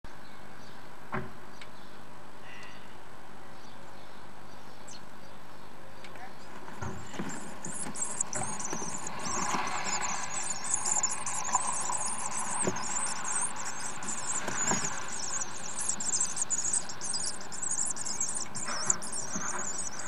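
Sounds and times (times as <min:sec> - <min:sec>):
bird chicks twittering: 0:06.4 - 0:20.0.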